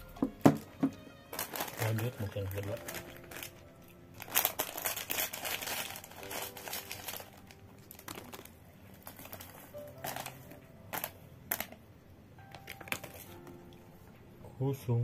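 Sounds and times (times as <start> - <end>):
plastic snack packet crinkling: 0.6 - 11.8, 12.4 - 13.6.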